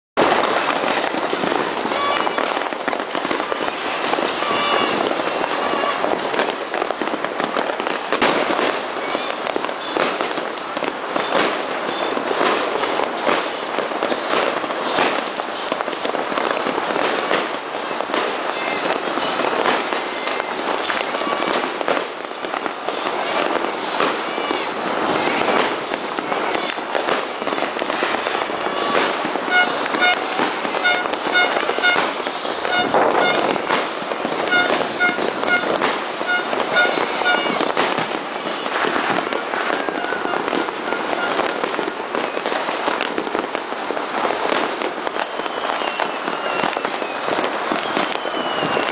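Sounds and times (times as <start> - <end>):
firecrackers banging and crackling: 0.2 - 48.9
short high beeps: 28.7 - 37.8.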